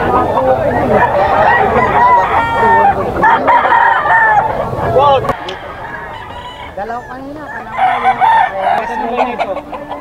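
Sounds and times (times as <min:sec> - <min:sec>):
roosters crowing: 0:00.0 - 0:10.0.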